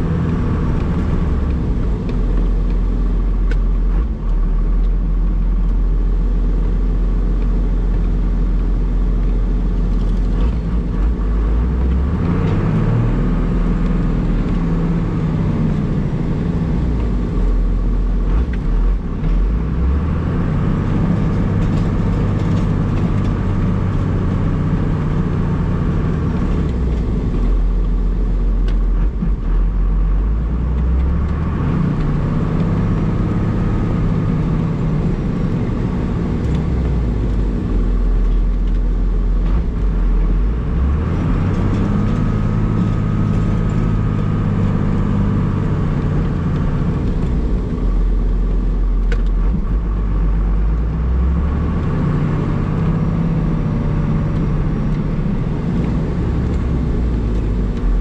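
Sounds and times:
diesel engine revving: 0.0 - 58.0.

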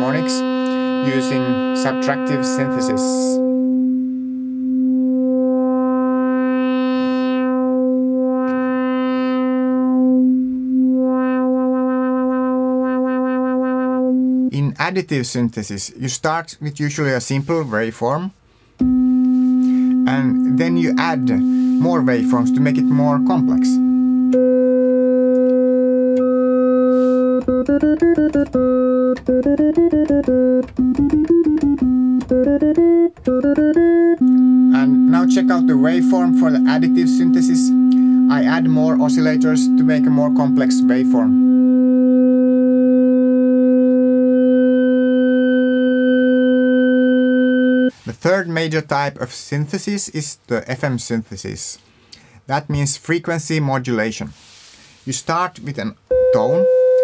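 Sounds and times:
filtered synthesizer note: 0.0 - 14.6, 18.8 - 48.0.

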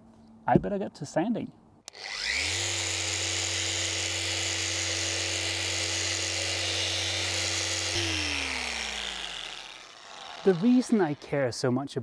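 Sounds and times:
orbital sander whining: 1.9 - 11.4.

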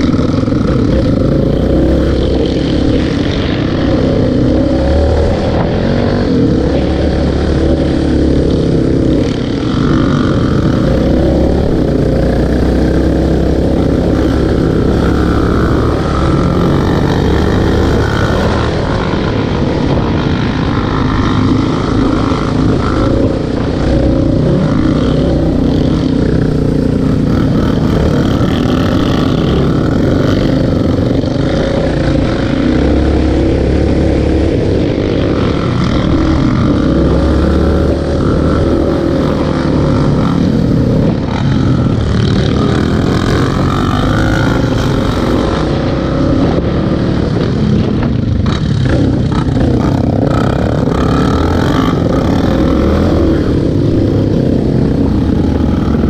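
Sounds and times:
atv engine running: 0.0 - 56.0
wind rumbling on microphone: 0.0 - 56.0.

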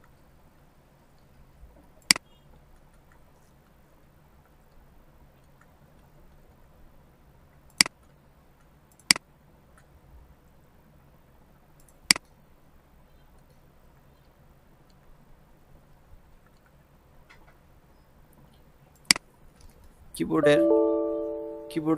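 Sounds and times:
faint room hiss: 0.0 - 21.9
computer mouse clicking: 7.6 - 9.9, 11.8 - 12.4.

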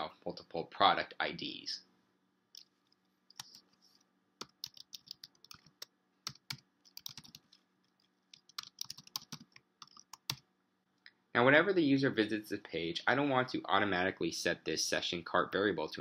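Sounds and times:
typing on computer keyboard: 4.4 - 7.6, 8.3 - 10.4.

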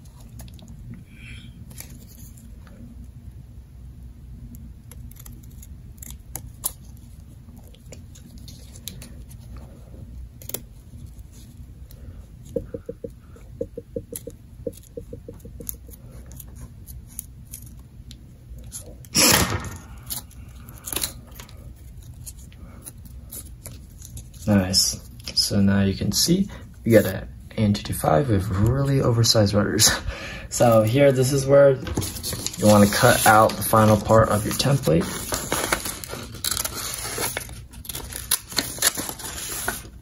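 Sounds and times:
scissors snipping paper: 4.8 - 9.0
paper rustling: 4.9 - 9.8, 31.8 - 40.0.

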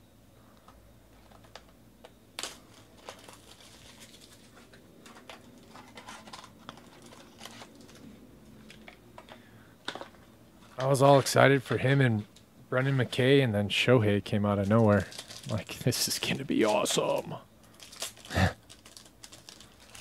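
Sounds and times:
card pack unwrapping crinkles: 2.4 - 9.0, 14.5 - 20.0.

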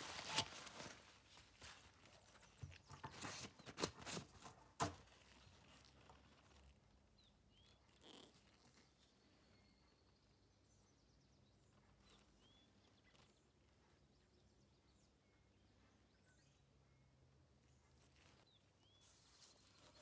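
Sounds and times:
faint bird chirps: 6.4 - 20.0.

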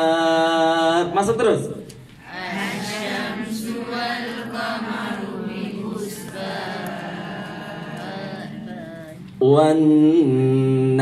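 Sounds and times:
group of voices chanting: 2.3 - 9.3.

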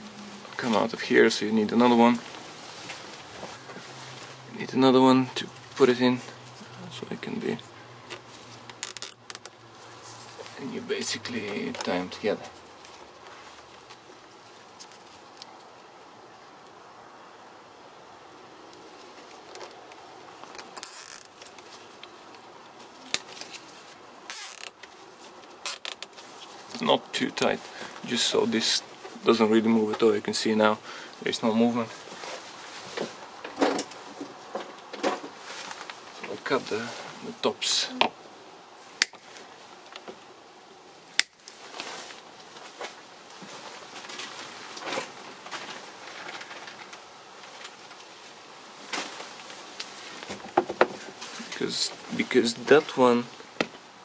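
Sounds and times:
handling rustles: 0.0 - 4.5, 31.2 - 37.3, 41.4 - 53.9
cable ties zipping: 8.1 - 9.5, 20.6 - 21.4, 24.3 - 24.8, 25.6 - 26.2
cable tie snips: 41.1 - 41.6.

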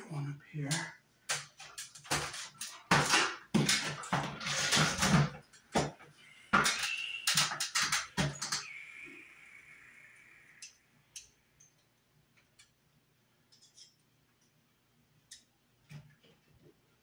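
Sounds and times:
faint high steady tone: 8.4 - 11.3.

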